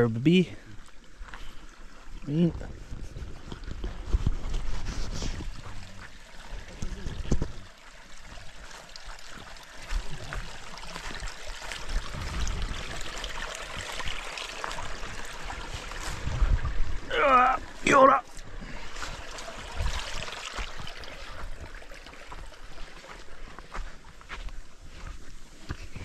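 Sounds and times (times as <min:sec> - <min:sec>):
stream trickling: 0:00.0 - 0:26.0
footsteps: 0:02.6 - 0:07.6, 0:15.6 - 0:16.8, 0:22.2 - 0:26.0.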